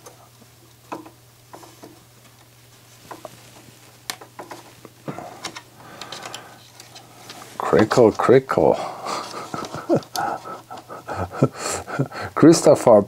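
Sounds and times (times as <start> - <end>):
plastic parts clicking and rattling: 5.4 - 8.3.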